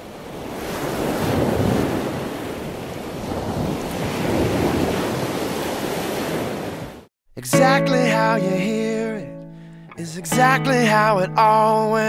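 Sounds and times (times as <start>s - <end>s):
ocean waves breaking: 0.1s - 7.1s
wind buffeting microphone: 0.9s - 6.8s.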